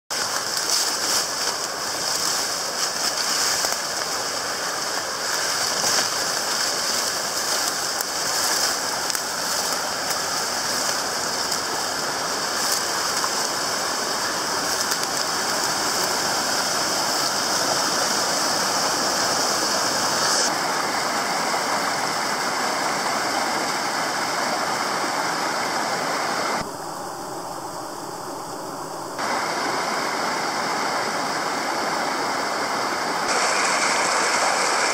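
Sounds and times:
leaves and grass brushing: 0:00.1 - 0:21.2, 0:33.3 - 0:34.9
stream rushing over rocks: 0:00.1 - 0:26.7, 0:29.2 - 0:34.9.

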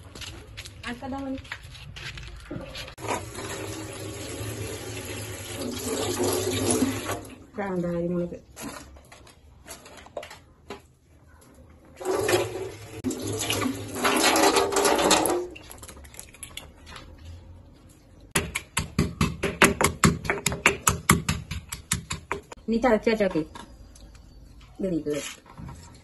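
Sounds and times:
tap water running into sink: 0:03.0 - 0:07.3, 0:12.0 - 0:15.6
stone pestle knocking in mortar: 0:18.4 - 0:22.5.

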